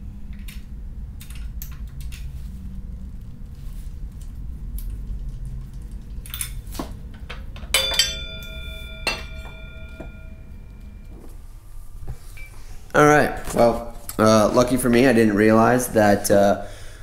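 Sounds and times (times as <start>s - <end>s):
low steady hum: 0.0s - 17.0s
metal plate clanking and ringing: 7.7s - 11.2s.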